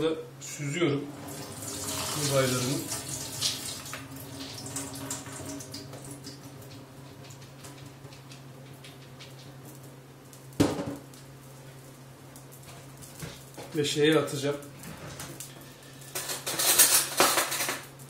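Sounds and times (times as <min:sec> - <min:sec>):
water trickling and dripping: 0:01.1 - 0:09.2.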